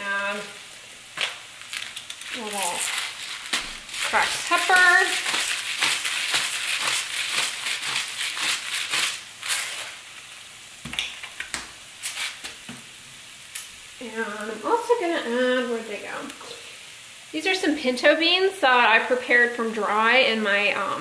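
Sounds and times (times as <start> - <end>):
food sizzling in a skillet: 0.0 - 21.0
spice grinder crunching: 1.2 - 10.3.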